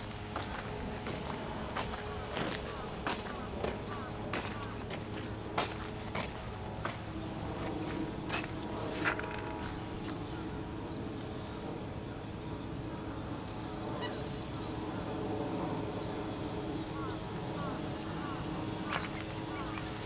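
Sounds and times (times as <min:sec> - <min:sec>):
faint bird calls: 0:00.0 - 0:20.0
outdoor background hum: 0:00.0 - 0:20.0.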